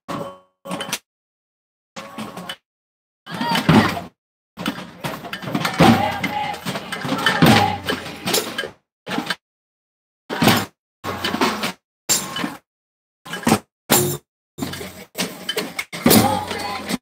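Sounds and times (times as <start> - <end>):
crowd voices and bustle: 3.3 - 8.6, 16.0 - 17.0.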